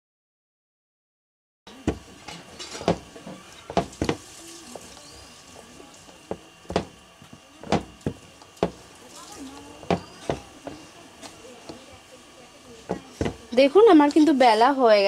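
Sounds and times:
wooden rolling pin knocks: 0:02.8 - 0:03.1, 0:03.7 - 0:04.2, 0:06.3 - 0:07.0, 0:07.6 - 0:08.8, 0:09.8 - 0:10.8, 0:12.9 - 0:13.6
rolling pin rubbing on dough: 0:09.7 - 0:11.8.

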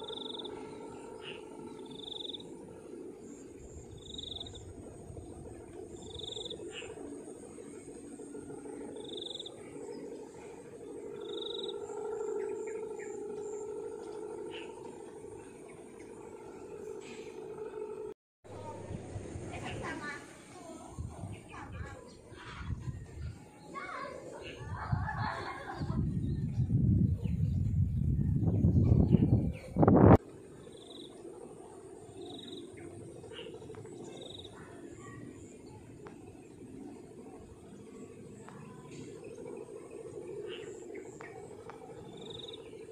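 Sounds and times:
rapid high chirp: 0:00.0 - 0:04.8, 0:08.8 - 0:13.7
faint low hum: 0:00.0 - 0:42.9
kite hummer buzzing drone: 0:00.0 - 0:42.9.

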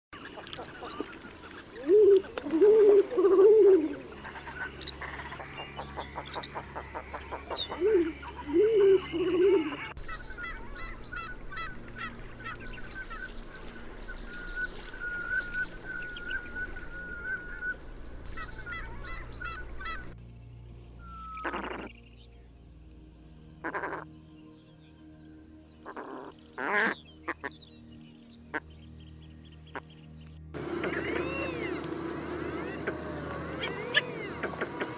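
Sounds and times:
high piping bird calls: 0:00.2 - 0:20.2, 0:21.0 - 0:22.5, 0:23.6 - 0:34.9
faint ticking bird calls: 0:00.2 - 0:20.4
bird whistle: 0:14.3 - 0:20.1.

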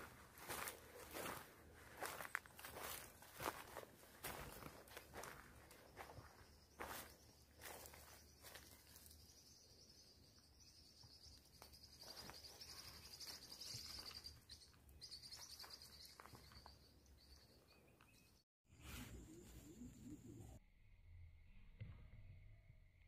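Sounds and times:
soft steps on leaf litter: 0:00.0 - 0:09.2
high-pitched chorus of birds or insects: 0:05.2 - 0:17.6.

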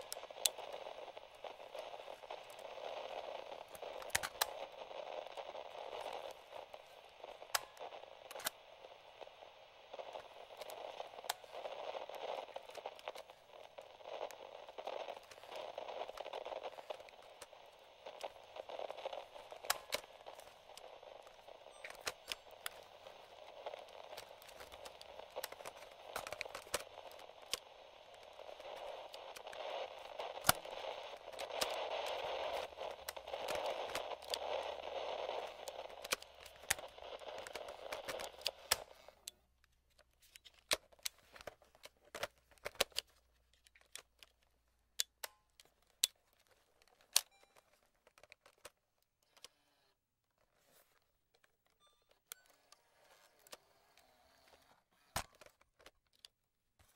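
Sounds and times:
radio static: 0:00.0 - 0:39.2
plastic clicks of radio controls: 0:00.0 - 0:49.7, 0:50.4 - 0:56.9.

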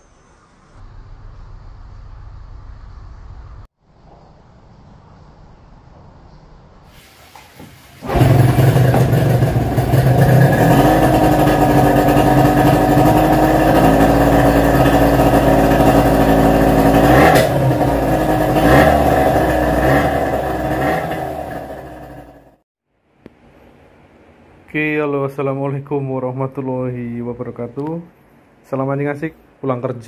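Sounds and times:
outboard motor running: 0:08.0 - 0:22.6.

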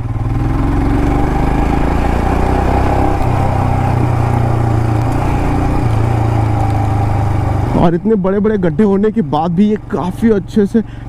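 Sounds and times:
motorcycle engine at low revs: 0:00.0 - 0:11.0.

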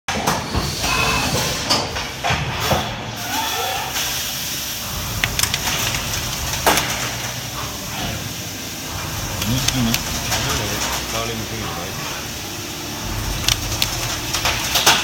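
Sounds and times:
low machine rumble: 0:04.3 - 0:15.0.

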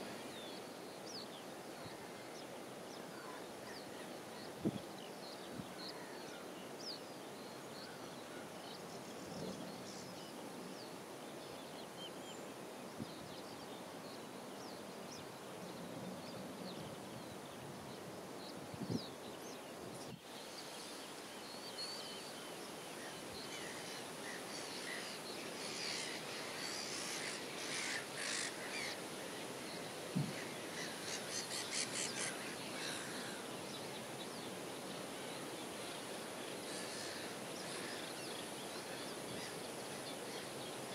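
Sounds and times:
outdoor background noise: 0:00.0 - 0:40.9
birds calling: 0:16.5 - 0:40.9.

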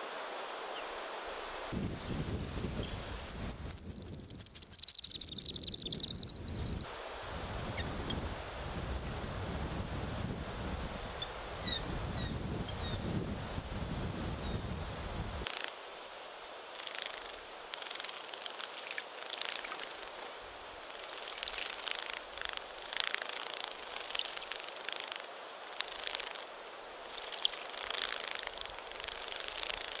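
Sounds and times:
thin high bird chirps: 0:03.0 - 0:06.8.

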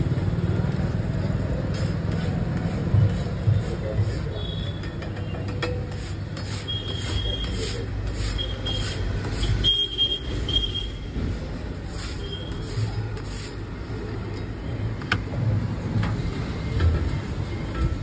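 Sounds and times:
spatula scraping steel griddle: 0:05.6 - 0:09.8.

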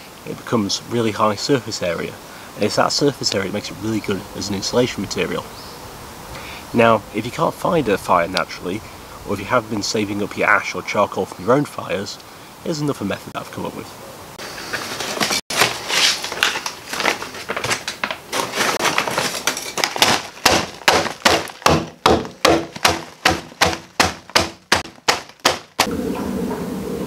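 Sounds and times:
charcoal rustling in bags: 0:14.4 - 0:25.9
sharp blows crushing charcoal: 0:14.9 - 0:25.9.

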